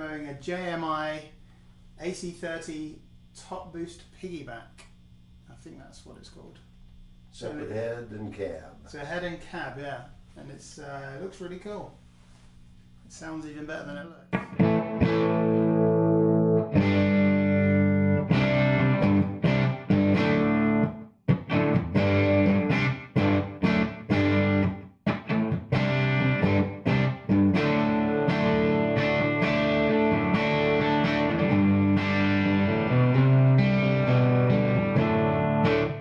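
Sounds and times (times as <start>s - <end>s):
electric guitar ringing chords: 14.3s - 36.0s.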